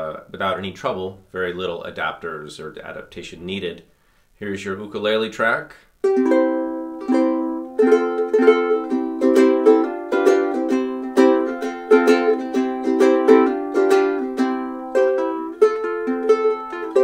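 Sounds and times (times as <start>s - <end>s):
ukulele chords strummed: 6.0s - 17.0s.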